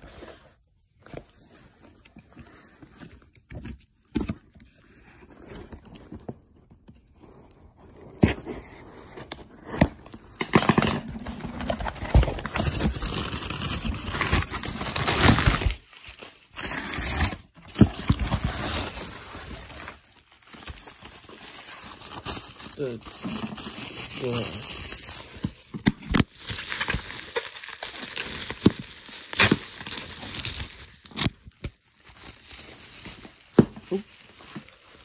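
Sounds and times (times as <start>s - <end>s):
paper and bubble wrap rustling: 11.1s - 35.0s.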